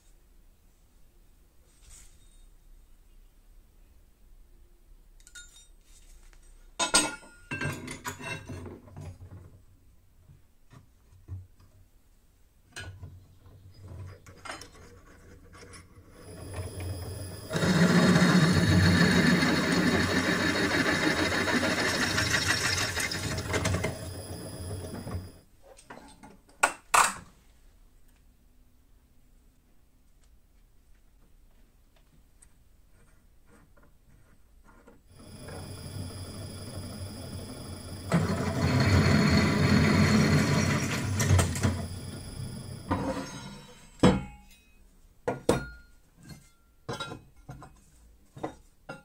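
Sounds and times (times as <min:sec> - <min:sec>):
drill press motor: 0:16.2 - 0:25.4, 0:35.1 - 0:43.4.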